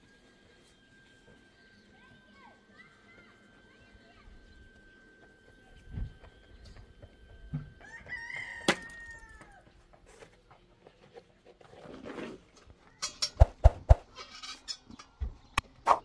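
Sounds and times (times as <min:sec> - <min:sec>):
rooster crowing: 0:07.6 - 0:09.8.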